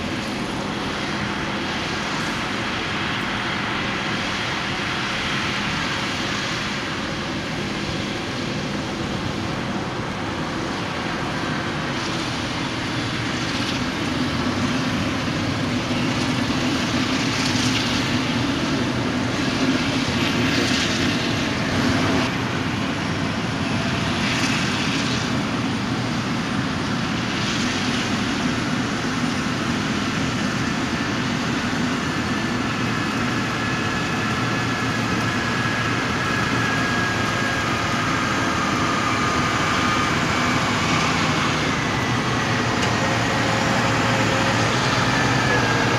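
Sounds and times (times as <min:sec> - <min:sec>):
heavy diesel engines droning: 0:00.0 - 0:45.9.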